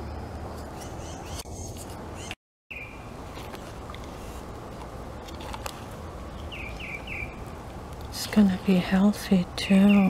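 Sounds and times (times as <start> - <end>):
low outdoor rumble: 0.0 - 10.0
birds chirping: 6.2 - 7.6, 8.2 - 10.0.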